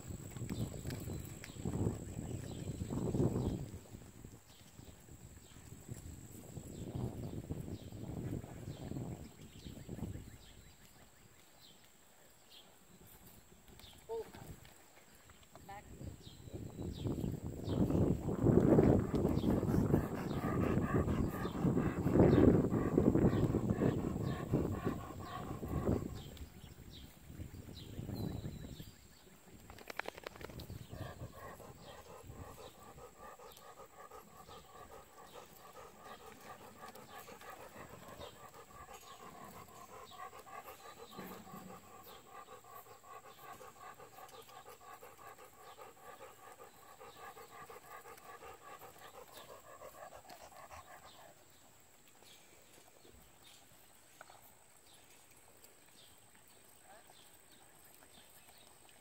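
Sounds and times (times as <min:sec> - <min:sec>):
dog panting fast: 0:17.8 - 0:26.4, 0:30.4 - 0:51.5.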